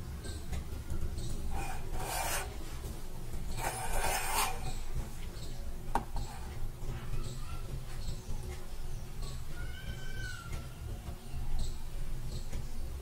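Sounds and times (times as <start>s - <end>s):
steel plate scraping on hard surface: 1.5s - 2.8s, 3.5s - 4.9s.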